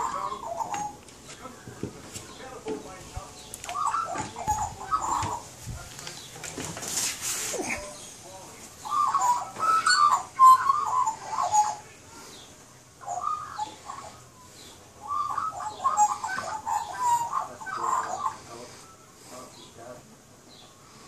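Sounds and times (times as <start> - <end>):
magpies warbling: 0.0 - 2.5, 3.4 - 5.6, 8.8 - 19.8.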